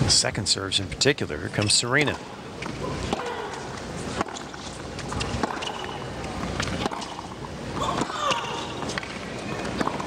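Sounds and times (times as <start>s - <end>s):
arena hum: 0.0s - 10.0s
tennis ball struck by rackets: 4.2s - 4.5s.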